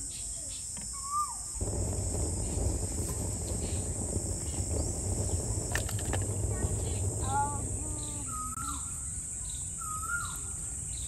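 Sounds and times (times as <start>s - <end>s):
insects droning: 0.0s - 11.0s
low rushing noise: 1.5s - 9.3s
bird call: 6.3s - 11.0s.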